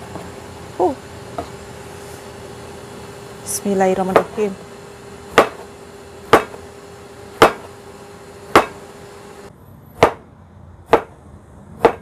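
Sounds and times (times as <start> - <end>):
cleaver knocking cutting board: 5.4 - 5.6, 6.3 - 6.6, 7.4 - 7.7, 8.6 - 8.8.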